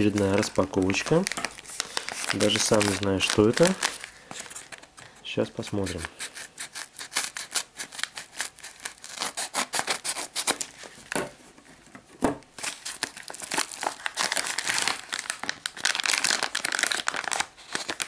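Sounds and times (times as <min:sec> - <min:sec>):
crinkling of envelope and plastic bag: 0:00.0 - 0:11.2, 0:12.5 - 0:18.0
scissors cutting paper envelope: 0:05.8 - 0:10.7.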